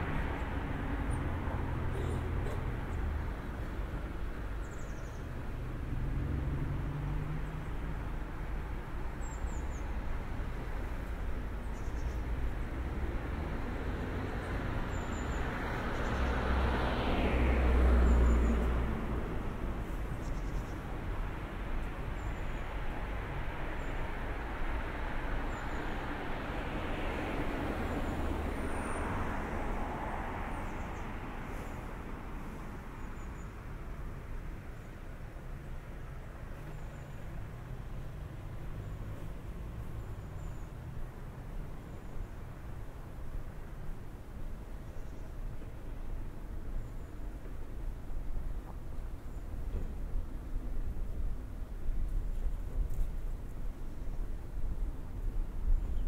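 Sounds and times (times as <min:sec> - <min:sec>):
distant road traffic hum: 0:00.0 - 0:56.0.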